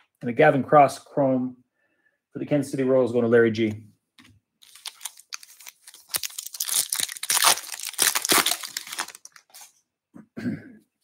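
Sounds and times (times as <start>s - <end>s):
foil wrapper tearing and crinkling: 4.6s - 9.7s.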